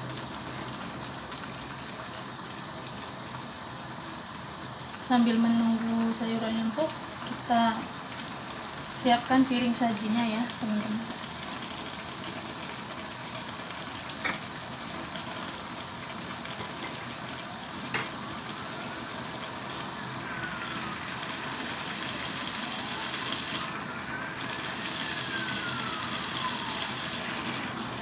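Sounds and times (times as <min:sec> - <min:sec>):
vegetables sizzling in a wok: 0:00.0 - 0:28.0.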